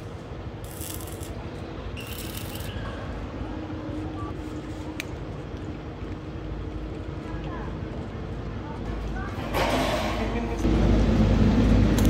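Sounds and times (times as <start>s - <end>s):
crackling hiss of arc welding: 0.0s - 2.8s
steady low rumble: 10.6s - 12.0s.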